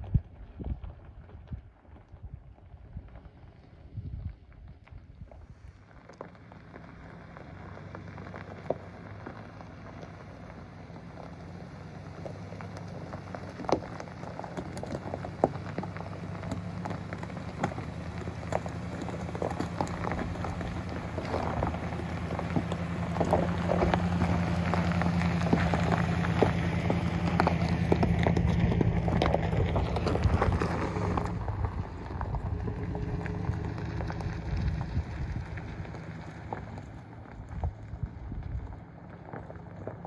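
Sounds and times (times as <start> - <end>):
low engine hum: 0.0 - 40.0
tyres crunching on gravel: 0.0 - 40.0.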